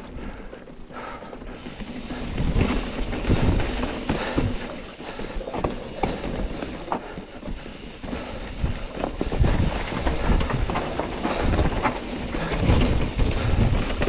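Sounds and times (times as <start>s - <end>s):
bike knocking and rattling: 0.0s - 14.0s
wind rumbling on microphone: 1.6s - 4.6s, 7.5s - 14.0s.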